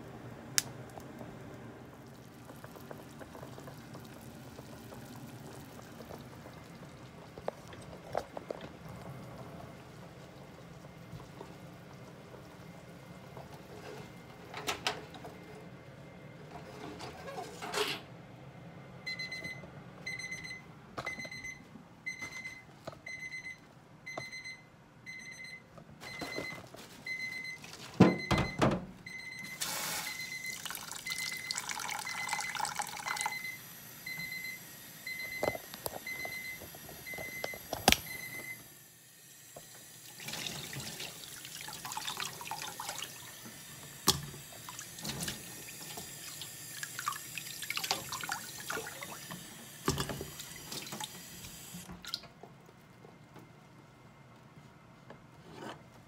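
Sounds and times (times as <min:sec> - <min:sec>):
kitchen timer beeping: 0:19.1 - 0:25.6, 0:27.1 - 0:38.6
tap running water into sink: 0:39.6 - 0:52.2.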